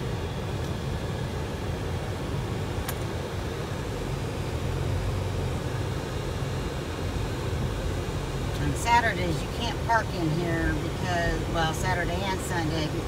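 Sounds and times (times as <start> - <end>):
car engine and tyre rumble: 0.0 - 13.0.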